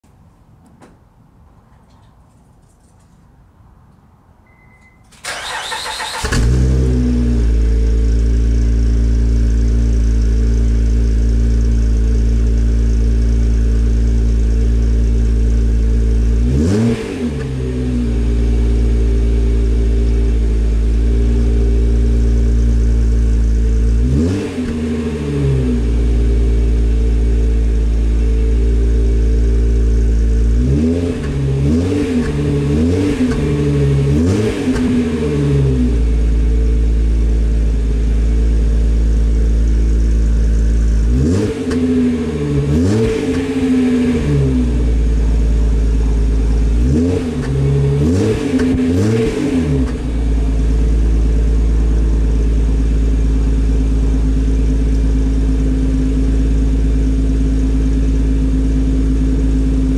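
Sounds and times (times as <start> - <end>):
car engine cranking and idling: 0.6 - 59.9
engine revving: 5.3 - 10.0, 16.4 - 19.7, 23.8 - 26.9, 30.4 - 36.4, 40.6 - 54.4.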